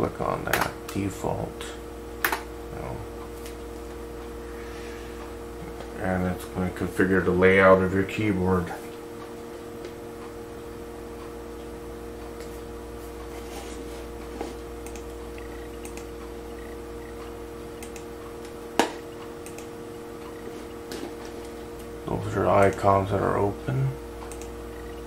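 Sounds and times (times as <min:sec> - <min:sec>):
steady low hum: 0:00.0 - 0:25.0
sharp click: 0:14.8 - 0:15.1, 0:15.8 - 0:16.1, 0:17.8 - 0:18.1, 0:18.8 - 0:19.7, 0:24.2 - 0:24.5.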